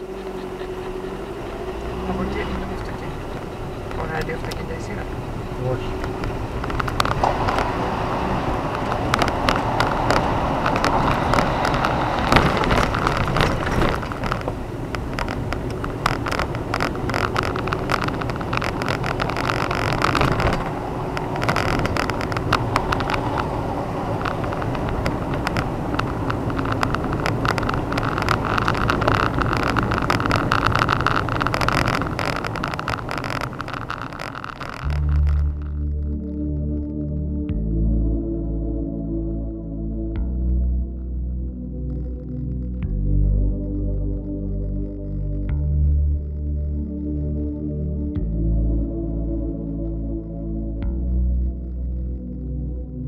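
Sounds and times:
gravel knocking under tyres: 0:00.0 - 0:36.1
vehicle driving on stony road: 0:00.0 - 0:53.0.

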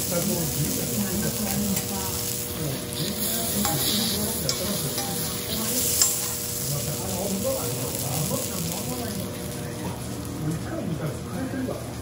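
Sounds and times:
meat sizzling on a griddle: 0:00.0 - 0:11.1
metal spatula scraping and tapping: 0:03.6 - 0:06.4.

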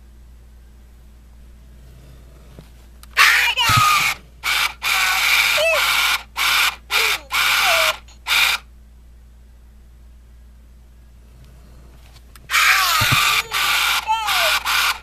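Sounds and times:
electronic toy voice squawking: 0:03.2 - 0:08.6, 0:12.5 - 0:15.0.

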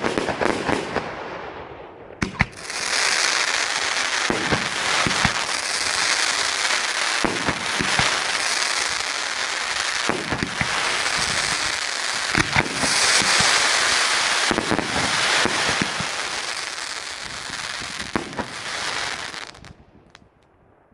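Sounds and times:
fireworks bursting: 0:00.0 - 0:01.5, 0:02.1 - 0:20.3
firework launch thumps: 0:12.3 - 0:13.6.

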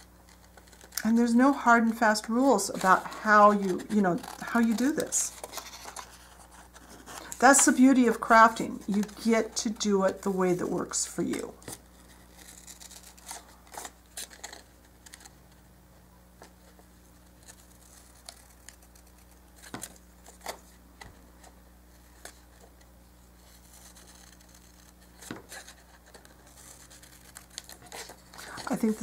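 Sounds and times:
scissors snipping paper: 0:00.3 - 0:06.2, 0:07.1 - 0:15.3.

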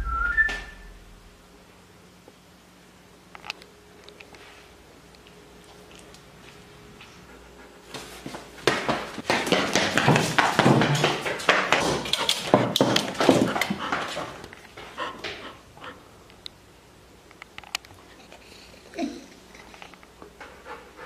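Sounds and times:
dog claws clicking on tile: 0:08.8 - 0:14.6.

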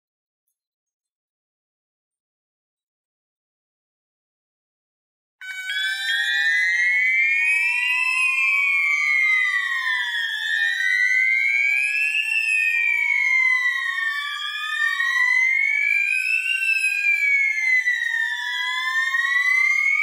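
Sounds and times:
fire alarm sounders wailing: 0:05.4 - 0:20.0.

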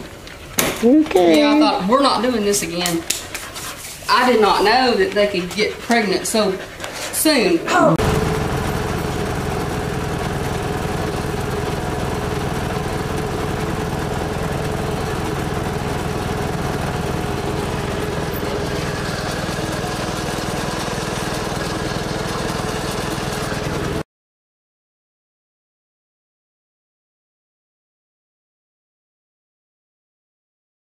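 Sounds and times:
vehicle engine droning: 0:08.0 - 0:24.0.

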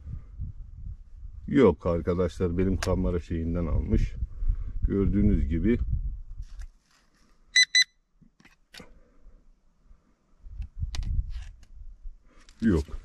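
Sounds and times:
metal detector beeping: 0:07.6 - 0:07.9.

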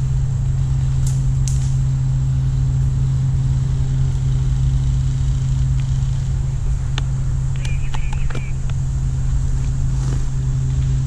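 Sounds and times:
steady low hum: 0:00.0 - 0:11.0
sharp clicks: 0:06.9 - 0:08.8.

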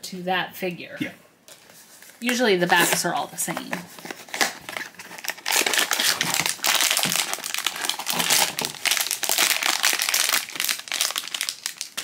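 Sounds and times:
foil bag crinkling: 0:03.9 - 0:12.0
cardboard box being opened: 0:04.0 - 0:09.1.

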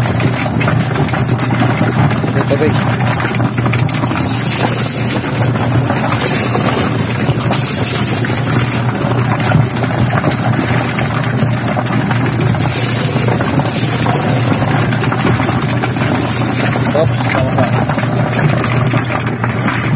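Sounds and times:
motor humming: 0:00.0 - 0:19.9
water pouring: 0:00.0 - 0:19.9.

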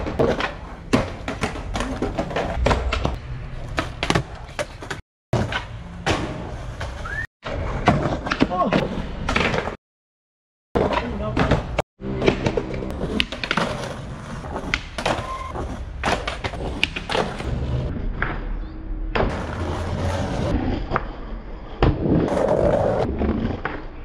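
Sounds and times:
skateboard clacks and slaps: 0:00.0 - 0:07.1, 0:10.8 - 0:15.4, 0:16.0 - 0:17.5
skateboard wheels rolling on stone: 0:10.8 - 0:18.3, 0:19.2 - 0:21.1, 0:21.7 - 0:24.0.

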